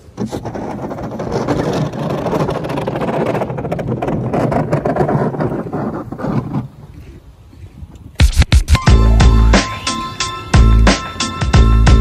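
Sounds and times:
truck engine and plow on snow: 0.0 - 7.3.

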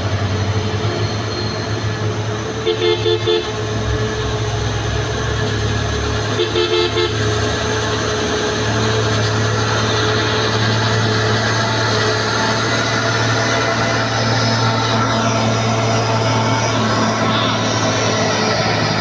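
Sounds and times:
diesel truck engine droning: 0.0 - 19.0
vehicle horn beeping: 2.6 - 3.6, 6.3 - 7.4.

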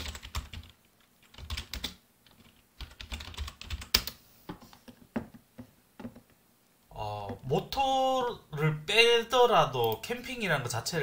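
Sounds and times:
typing on computer keyboard: 0.0 - 4.2.

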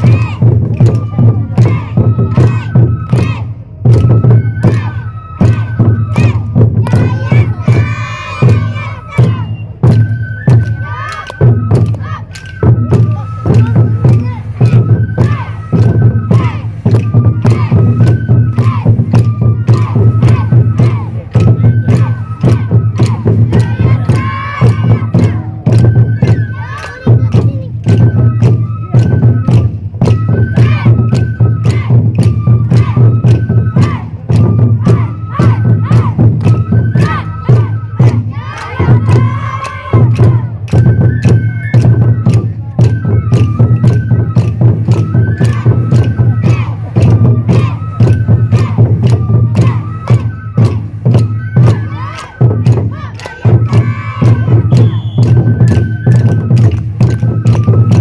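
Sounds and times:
children shouting: 0.0 - 3.6, 4.6 - 9.5, 10.8 - 12.5, 13.1 - 16.7, 19.7 - 25.8, 26.4 - 27.7, 34.8 - 36.3, 37.0 - 40.6, 45.4 - 48.8, 49.5 - 50.3, 51.6 - 55.1
high flute melody: 0.0 - 58.0
taiko drums beating: 0.0 - 58.0.

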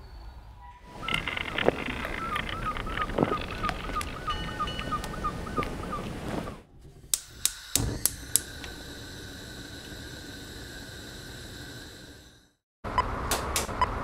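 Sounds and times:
chirping: 0.0 - 6.1
sharp clicks and clatters: 1.0 - 4.2.

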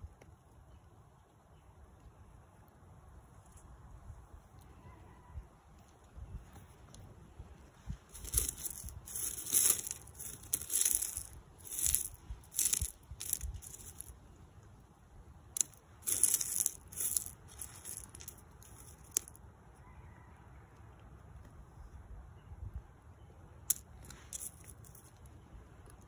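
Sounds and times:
rock chips crunching and scraping: 8.1 - 14.2, 15.5 - 19.4, 23.7 - 25.2.

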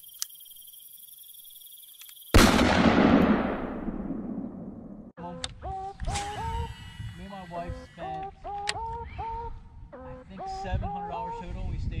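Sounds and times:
cricket chirping: 0.0 - 4.7
loud explosion boom: 2.4 - 5.1.

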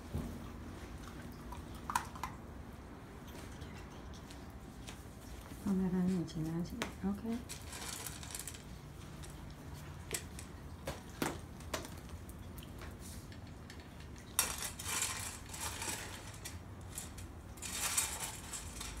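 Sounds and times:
kibble clattering in a bowl: 7.4 - 9.4, 13.4 - 19.0.

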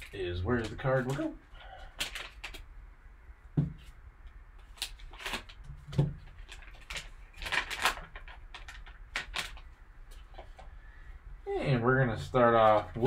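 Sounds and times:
plastic packaging crinkling: 0.0 - 2.7, 4.6 - 10.6.

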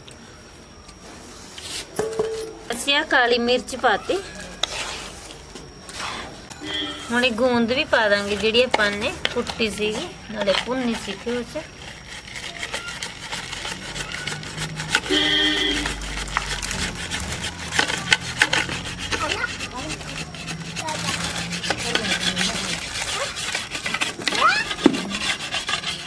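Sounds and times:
metal spoon scraping a plate: 4.2 - 26.0.

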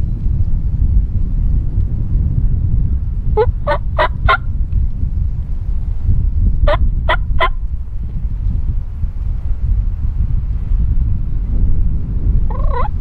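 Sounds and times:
low wind rumble: 0.0 - 13.0
turkey gobbling: 3.4 - 4.4, 12.5 - 12.9.

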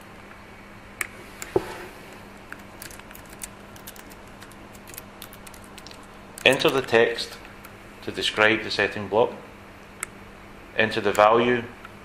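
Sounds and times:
faint steady hum: 0.0 - 12.0
typing on computer keyboard: 2.6 - 6.9.

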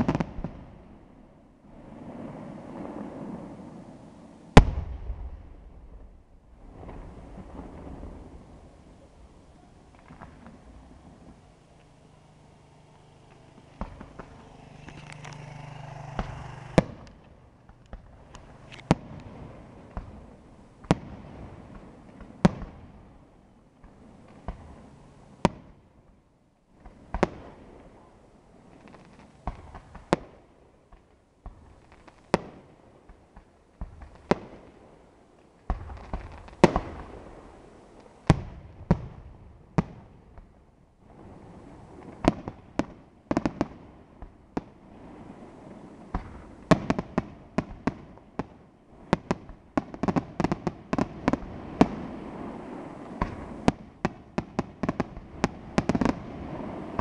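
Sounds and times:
firework shells bursting: 13.0 - 20.2.

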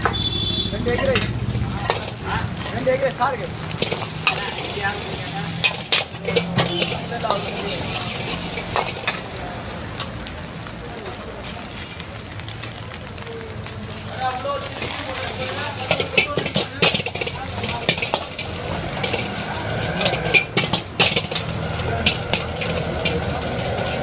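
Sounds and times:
egg sizzling in a wok: 0.1 - 24.0
ladle scraping and clinking on pan: 1.0 - 2.8, 3.7 - 9.4, 14.7 - 24.0.

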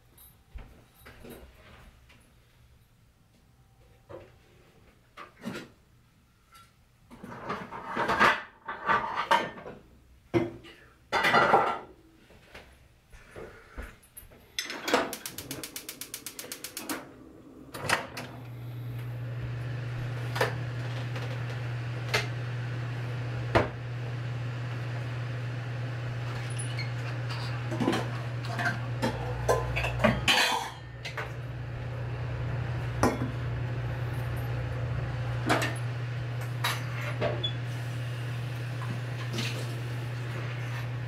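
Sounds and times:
frying pan metal clatter: 14.6 - 17.0, 27.3 - 30.9
gas burner hum and hiss: 14.6 - 41.0
stove igniter ticking: 15.1 - 17.1.

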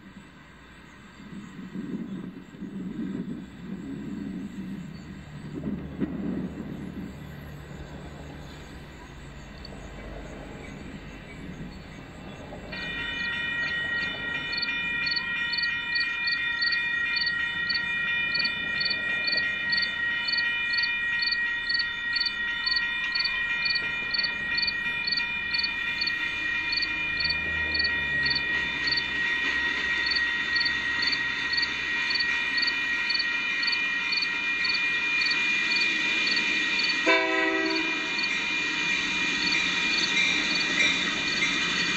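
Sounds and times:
faint train rumble: 0.0 - 41.9
crossing bell ringing: 12.4 - 41.9.

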